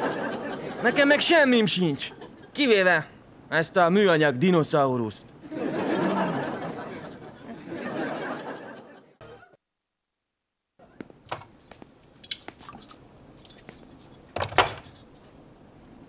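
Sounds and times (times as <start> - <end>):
audience laughter: 0.0 - 1.3, 5.4 - 9.6.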